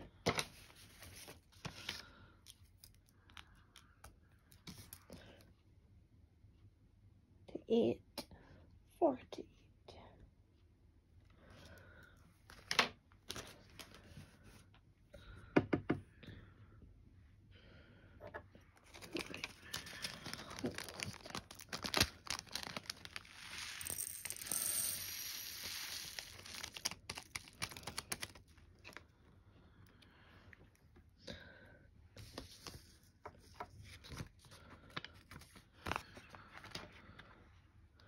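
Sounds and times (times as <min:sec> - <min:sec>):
plastic packaging crinkling: 0:18.8 - 0:24.5, 0:25.4 - 0:29.0.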